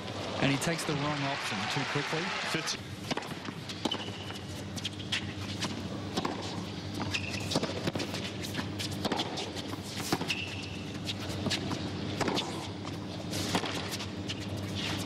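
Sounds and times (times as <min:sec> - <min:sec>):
shoes squeaking on court: 0:03.2 - 0:15.0.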